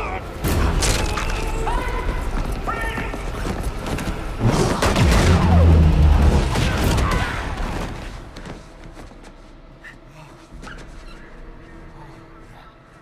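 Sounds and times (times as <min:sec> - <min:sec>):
fight cracks and hits: 0:04.4 - 0:08.6.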